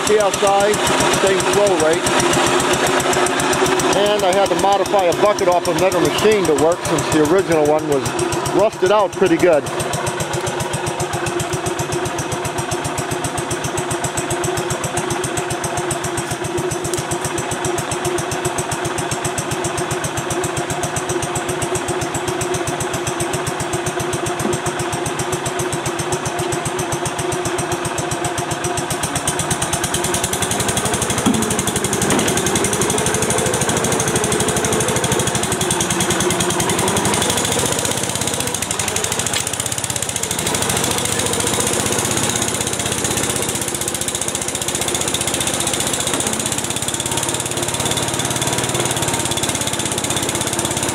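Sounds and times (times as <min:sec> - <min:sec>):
skid steer engine running: 0:00.0 - 0:50.9.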